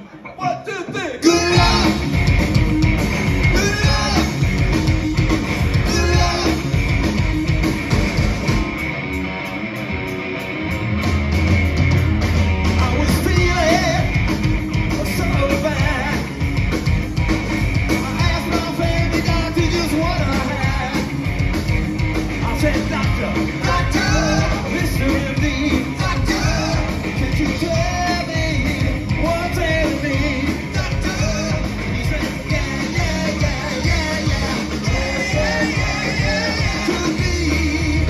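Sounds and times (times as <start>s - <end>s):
man singing lead vocals: 0.0s - 2.3s, 3.4s - 5.0s, 5.6s - 7.2s, 12.8s - 14.3s, 14.9s - 16.4s, 17.9s - 21.2s, 22.4s - 38.0s
bass guitar: 0.0s - 38.0s
drum kit: 0.0s - 38.0s
electric guitars: 0.0s - 38.0s.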